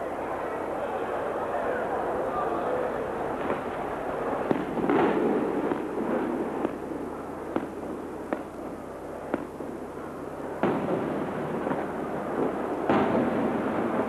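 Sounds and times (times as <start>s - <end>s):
firework burst with echo: 4.4s - 9.8s, 10.6s - 14.0s.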